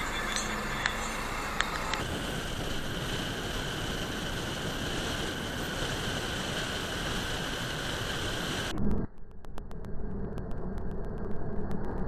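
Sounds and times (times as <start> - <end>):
car tyre and wind noise: 0.0 - 9.1.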